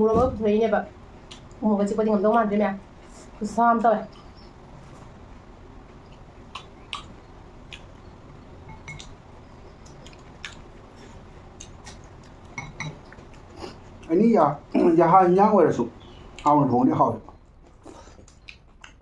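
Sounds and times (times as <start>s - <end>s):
quiet chewing: 1.2s - 1.6s, 5.8s - 14.2s, 16.0s - 16.6s, 17.2s - 19.0s
spoon clinking in glass bowl: 12.6s - 13.0s.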